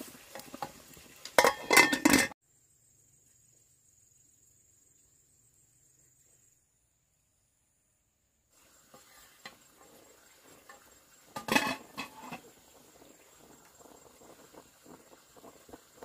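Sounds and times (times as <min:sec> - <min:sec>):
clattering rustle: 0:00.3 - 0:02.4, 0:10.6 - 0:12.5.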